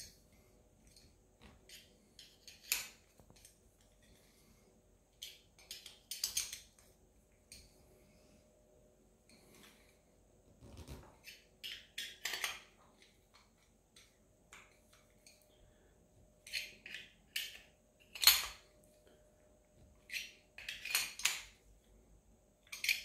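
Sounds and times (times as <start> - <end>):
screwdriver clicking and scraping: 0.8 - 4.1, 5.2 - 6.9, 10.8 - 15.4, 16.4 - 18.6, 20.0 - 21.6, 22.7 - 23.0.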